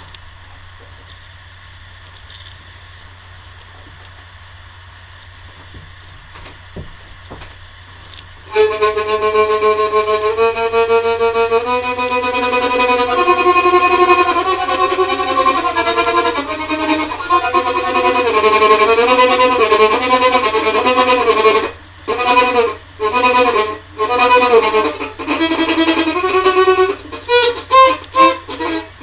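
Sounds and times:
low steady hum: 0:00.0 - 0:29.0
soft knocks: 0:05.7 - 0:07.6
violin bowed notes: 0:08.5 - 0:29.0.

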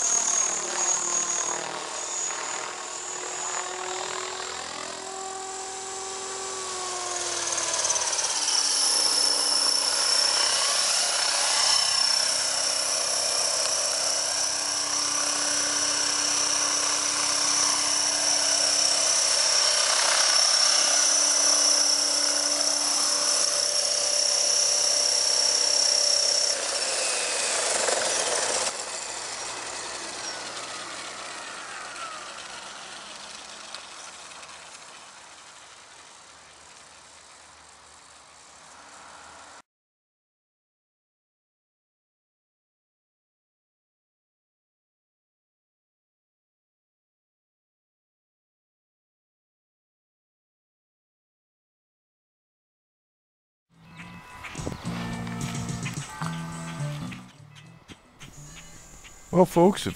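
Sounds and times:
rc helicopter whine: 0:00.0 - 0:39.7, 0:53.8 - 0:59.9.

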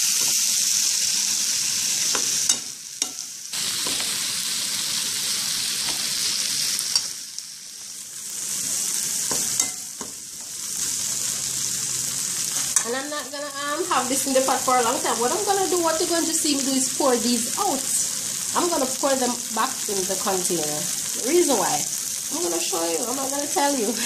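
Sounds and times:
prawns sizzling in curry sauce: 0:00.0 - 0:24.0.

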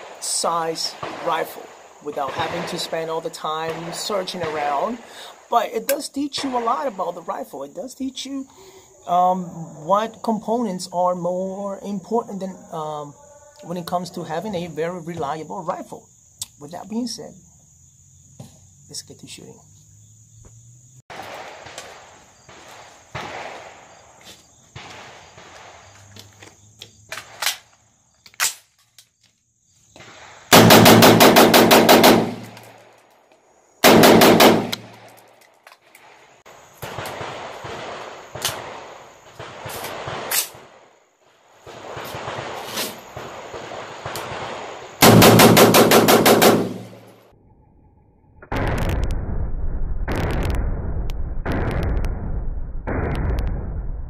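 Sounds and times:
rifle gunfire: 0:21.1 - 0:23.8, 0:30.5 - 0:32.8, 0:33.8 - 0:35.1, 0:36.8 - 0:40.9, 0:41.7 - 0:47.1.

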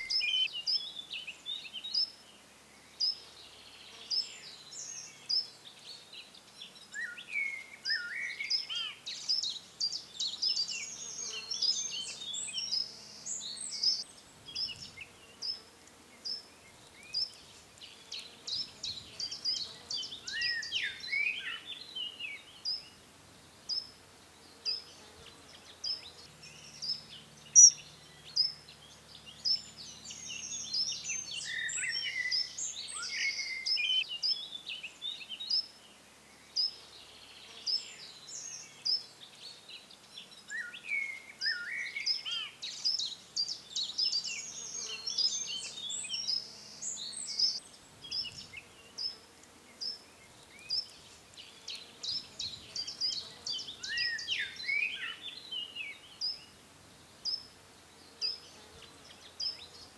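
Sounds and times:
faint buzzing insect: 0:00.0 - 0:59.9
songbirds singing: 0:00.0 - 0:59.9.

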